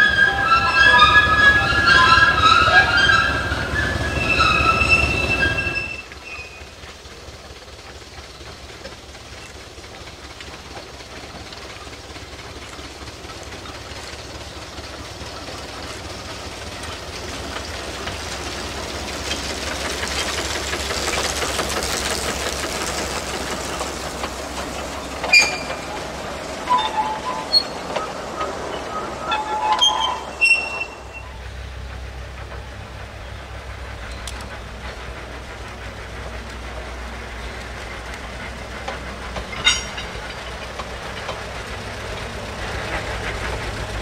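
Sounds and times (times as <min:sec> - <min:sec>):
short high squeaks: 0:00.0 - 0:06.7, 0:25.2 - 0:31.5, 0:39.5 - 0:40.2
steam locomotive rolling on rails: 0:00.0 - 0:44.0
sharp metal clank: 0:39.5 - 0:40.2.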